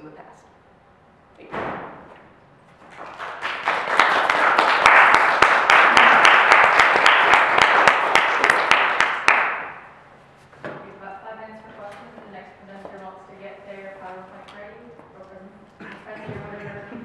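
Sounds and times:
audience applauding: 2.9s - 9.8s.

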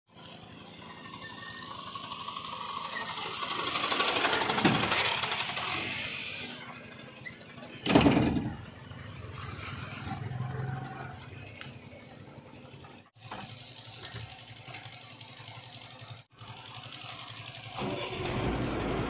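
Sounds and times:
motorcycle passing by: 8.7s - 12.7s.

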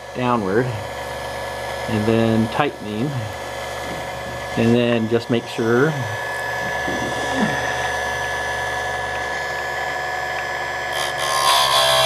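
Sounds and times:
chainsaw sharpener motor whine: 0.0s - 12.0s
grinding wheel on chain: 10.9s - 12.0s.

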